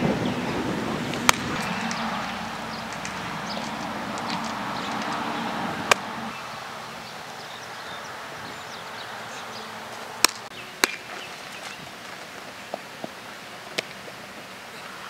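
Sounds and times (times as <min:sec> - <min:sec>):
outdoor background hiss: 0:00.0 - 0:15.0
baseball smacks: 0:01.1 - 0:05.2, 0:05.8 - 0:06.2, 0:10.2 - 0:11.2, 0:13.7 - 0:14.0.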